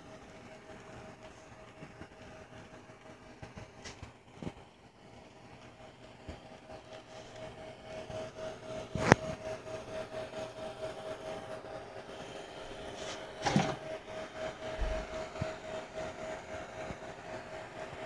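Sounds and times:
model train motor hum: 0:05.0 - 0:18.0.

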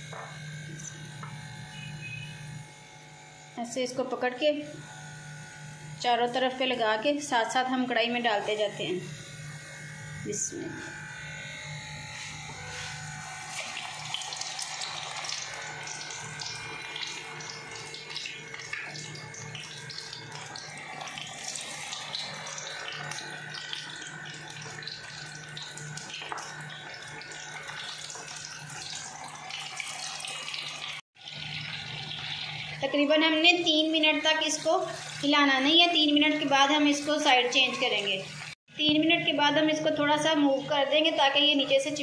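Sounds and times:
chicken deep-frying in oil: 0:13.3 - 0:42.0.

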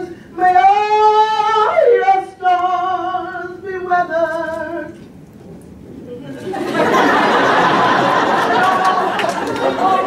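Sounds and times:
woman singing with vibrato: 0:00.0 - 0:05.0.

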